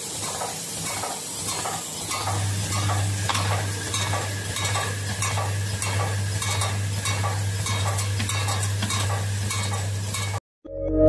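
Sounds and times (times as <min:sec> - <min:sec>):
gas torch hissing: 0:00.0 - 0:06.3
machine hum: 0:02.1 - 0:10.3.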